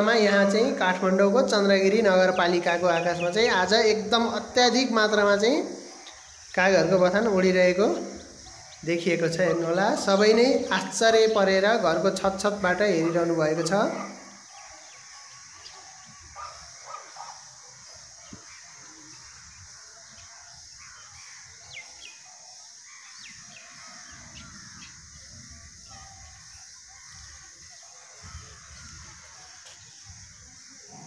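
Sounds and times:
steady hiss: 0.0 - 31.0
crows cawing: 18.2 - 26.1, 26.7 - 29.6.

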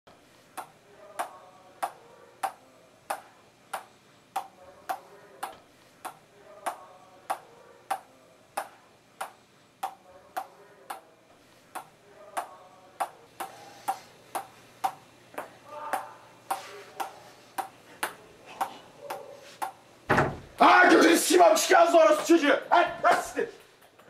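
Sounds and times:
ping-pong ball bouncing: 0.6 - 11.1, 11.8 - 19.8.

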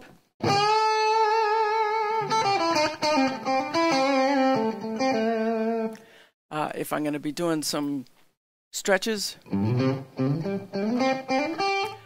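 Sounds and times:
electric guitar string bends: 9.5 - 12.0.

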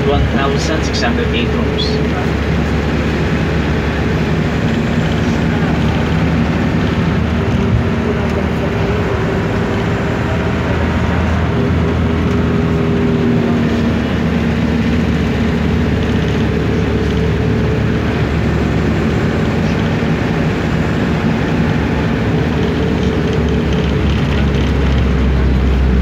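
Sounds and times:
constant low hum: 0.0 - 26.0
engine drone: 0.0 - 26.0
road noise: 0.0 - 26.0.

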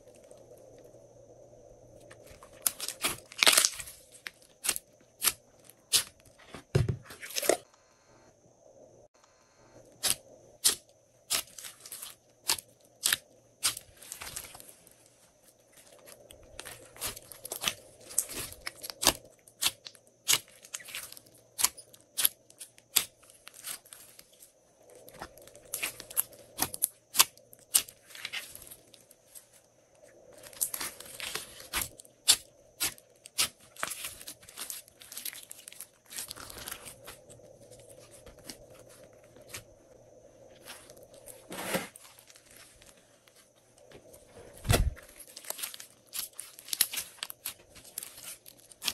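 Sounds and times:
slime popping and crackling: 2.6 - 3.9.

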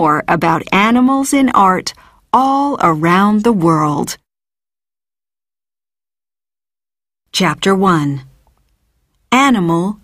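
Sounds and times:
narrator speaking: 0.0 - 4.2, 7.3 - 8.4, 9.3 - 10.0.

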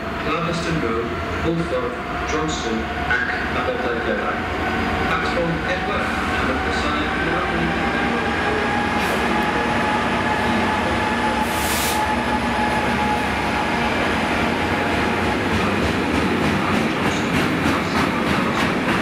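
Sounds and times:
locomotive engine drone: 0.0 - 16.4
train wheels clicking over rail joints: 15.0 - 19.0.

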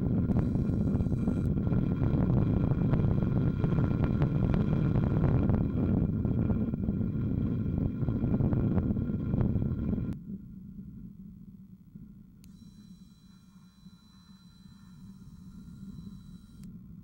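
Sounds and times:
car road and wind rumble: 0.0 - 10.2.

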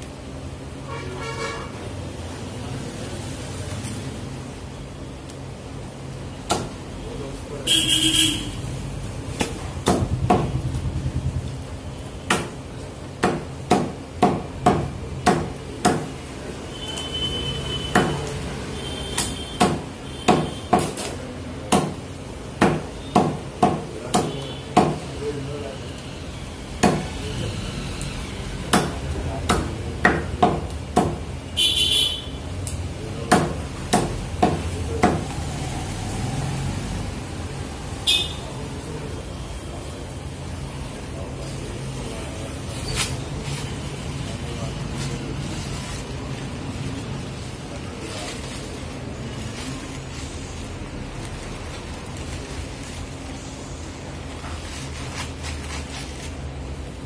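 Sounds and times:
cleaver chopping on a block: 13.2 - 16.1, 19.6 - 21.1, 21.7 - 22.0, 33.3 - 35.3.

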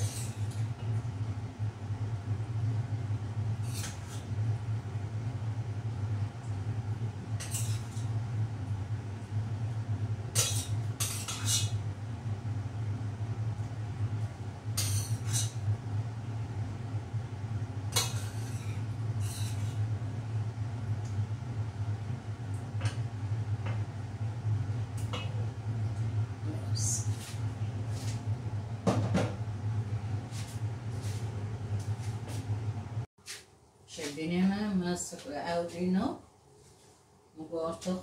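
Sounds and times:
steady low hum: 0.0 - 38.0
metal spoon scraping steel pot: 10.4 - 11.8, 18.0 - 19.8.

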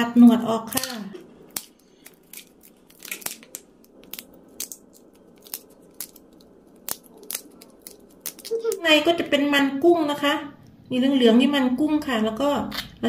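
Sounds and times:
kitchen scissors snipping shell: 0.7 - 2.4.

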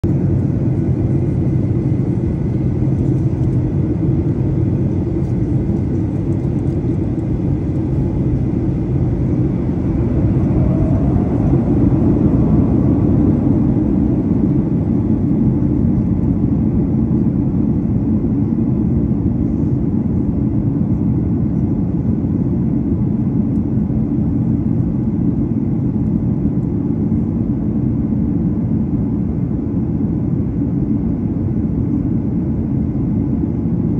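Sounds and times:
rising whine: 0.0 - 16.8
faint steady whine: 0.0 - 33.9
jet engines and airflow rumble: 0.0 - 33.9.

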